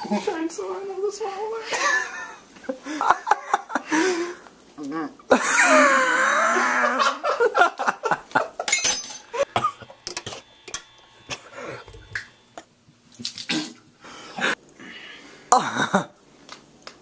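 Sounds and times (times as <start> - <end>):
man coughing and gagging: 9.4 - 10.0.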